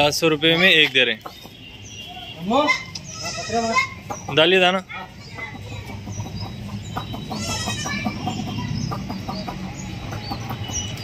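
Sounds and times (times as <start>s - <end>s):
hens clucking: 2.6s - 11.0s
chicks peeping: 2.8s - 11.0s.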